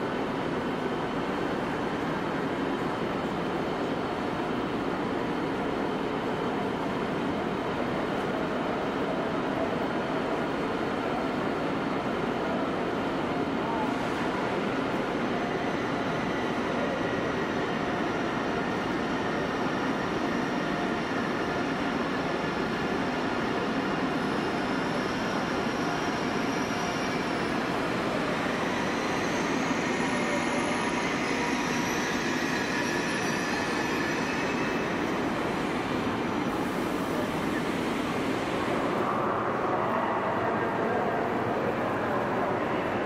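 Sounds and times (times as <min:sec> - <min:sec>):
train running noise: 0:00.0 - 0:43.0
high wheel squeal: 0:28.5 - 0:35.1.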